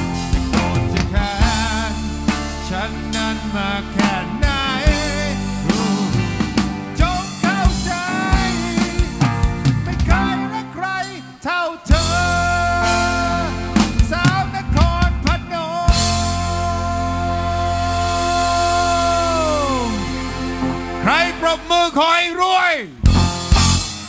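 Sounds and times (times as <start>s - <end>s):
keyboard: 0.0s - 24.0s
live band playing chords: 0.0s - 24.0s
man singing: 0.5s - 20.4s, 21.0s - 23.0s.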